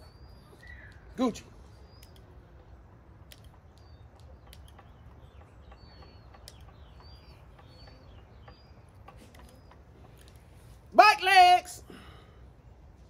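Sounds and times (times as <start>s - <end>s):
faint bird chirps: 0.0s - 10.8s
light clicks: 1.9s - 10.5s.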